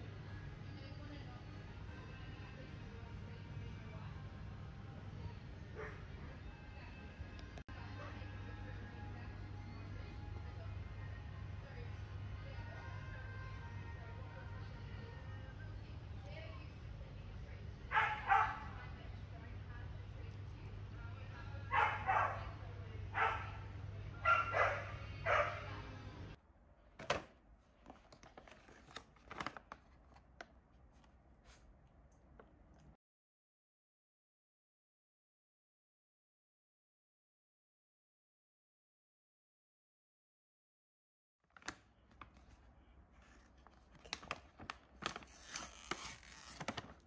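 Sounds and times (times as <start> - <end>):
plastic pouch crinkling: 27.9 - 31.1, 41.5 - 47.0.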